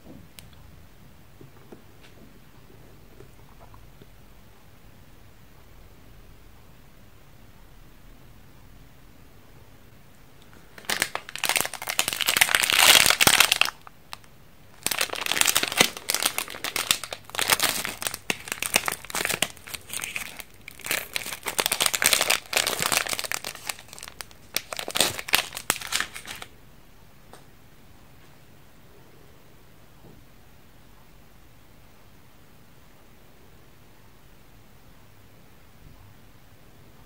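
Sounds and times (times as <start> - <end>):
plastic candy wrapper crinkling: 10.5 - 26.5.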